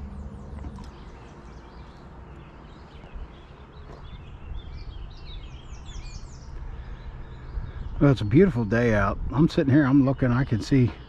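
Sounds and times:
low outdoor rumble: 0:00.0 - 0:11.0
small birds chirping: 0:00.0 - 0:11.0.

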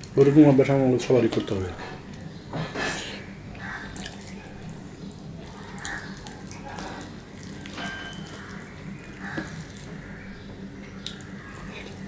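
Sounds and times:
wet chewing and lip-smacking: 0:03.0 - 0:10.2, 0:10.8 - 0:12.0.

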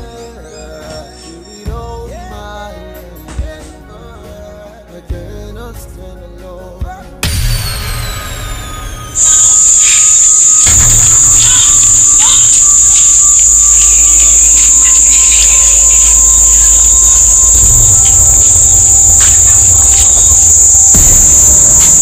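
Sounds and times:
night insects droning: 0:09.1 - 0:22.0.

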